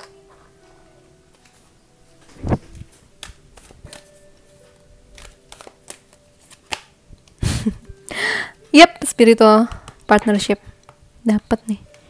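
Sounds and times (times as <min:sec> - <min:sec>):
playing cards shuffled: 0:02.2 - 0:07.4.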